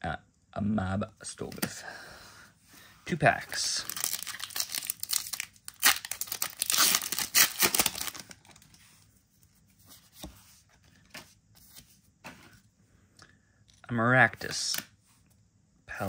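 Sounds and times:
foil wrapper tearing and crinkling: 0:03.7 - 0:08.6.

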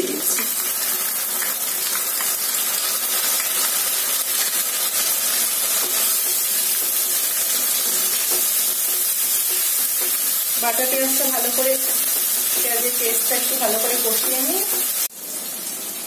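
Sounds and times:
onion paste sizzling in oil: 0:00.0 - 0:16.0
wooden spoon stirring in wok: 0:03.8 - 0:15.1.

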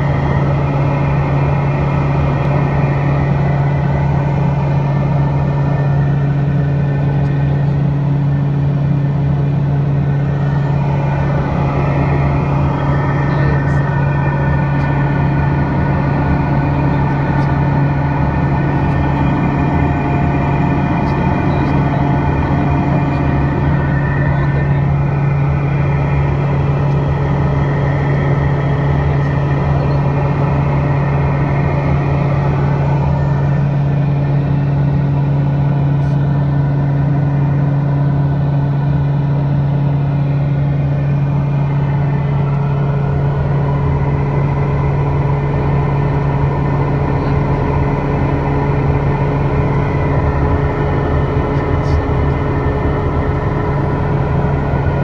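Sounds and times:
engine whine: 0:00.0 - 0:55.0
turboprop engine drone: 0:00.0 - 0:55.0.

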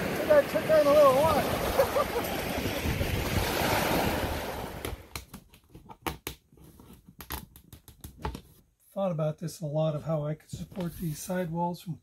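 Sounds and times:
small waves washing onto beach: 0:00.0 - 0:05.1
wind on microphone: 0:01.0 - 0:05.0
plastic kayak clicking and knocking: 0:04.8 - 0:08.6.

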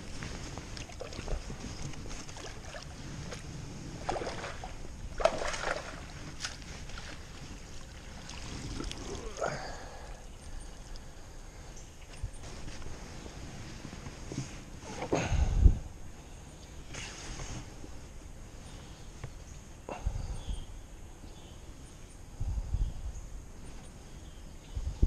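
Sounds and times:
water splashing and sloshing: 0:00.0 - 0:11.1.

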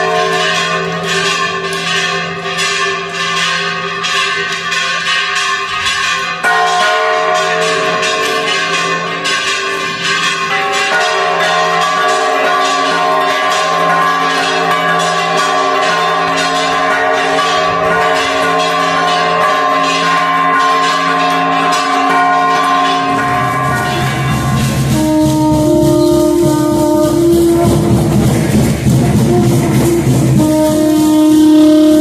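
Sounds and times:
church bells ringing: 0:00.0 - 0:32.0
music with bass guitar and drums: 0:24.0 - 0:32.0.

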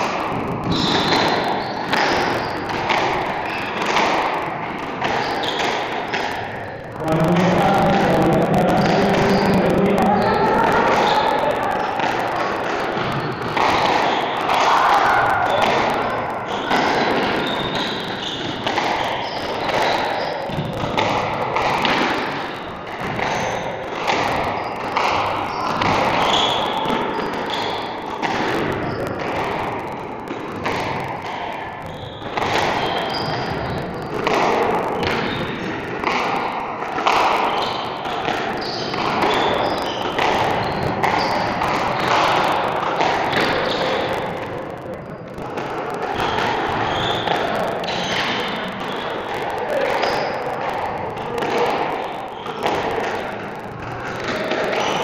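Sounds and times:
squash ball hitting rackets and walls: 0:00.0 - 0:06.6, 0:16.5 - 0:44.6
shoe squeaks: 0:00.7 - 0:03.8, 0:05.1 - 0:05.9, 0:16.5 - 0:20.6, 0:24.6 - 0:28.0, 0:31.8 - 0:34.1, 0:35.0 - 0:35.5, 0:37.4 - 0:42.1, 0:46.2 - 0:50.5.

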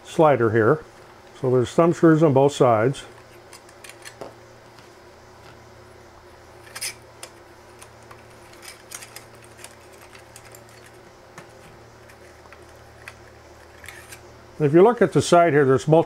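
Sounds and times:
steady low hum: 0:00.0 - 0:16.0
small metal parts clicking: 0:03.5 - 0:04.3, 0:06.6 - 0:11.0, 0:12.0 - 0:14.2.

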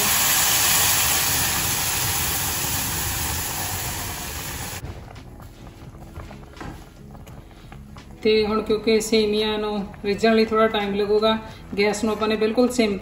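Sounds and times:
milk sizzling in hot pan: 0:00.0 - 0:04.8.

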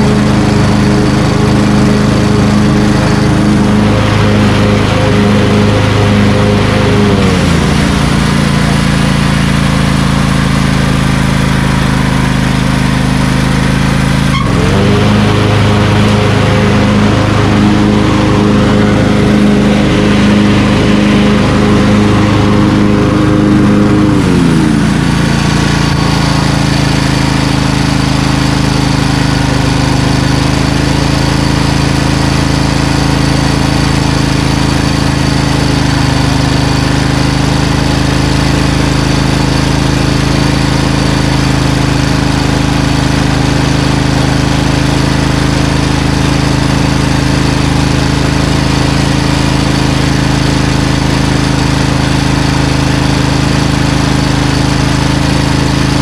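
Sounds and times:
lawn tractor engine running: 0:00.0 - 0:56.0.

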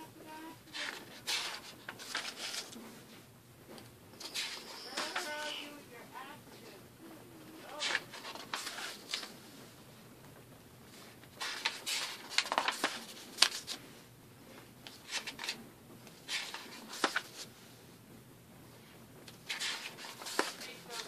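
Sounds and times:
paper pages turning: 0:00.7 - 0:02.8, 0:04.2 - 0:05.6, 0:07.6 - 0:09.4, 0:10.9 - 0:13.8, 0:14.8 - 0:17.5, 0:19.3 - 0:21.0.

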